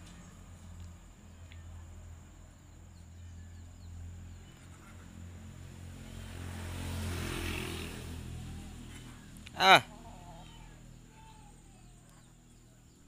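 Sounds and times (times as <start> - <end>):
passing vehicle engine drone: 5.0 - 12.7.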